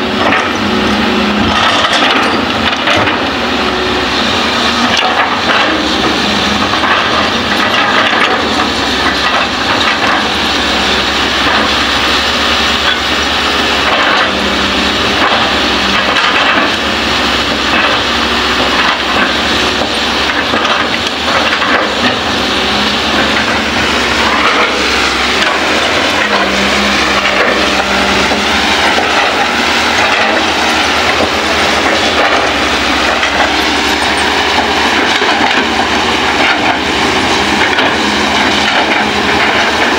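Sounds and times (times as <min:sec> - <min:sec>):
excavator diesel engine under load: 0:00.0 - 0:39.9
clattering and crunching: 0:01.4 - 0:03.3, 0:04.8 - 0:10.4, 0:12.8 - 0:39.9
bucket digging and scraping soil: 0:13.8 - 0:39.9.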